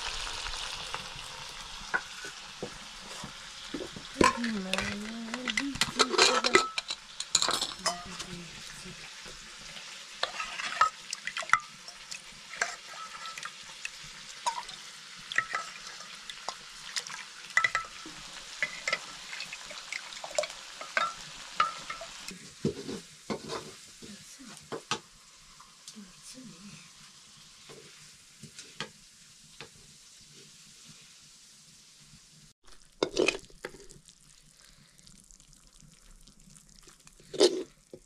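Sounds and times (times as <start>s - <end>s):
food frying sizzle: 0.0s - 38.0s
steel ladle clinking on pots: 4.2s - 8.3s, 10.2s - 13.6s, 14.4s - 16.6s, 17.5s - 19.2s, 20.2s - 22.2s.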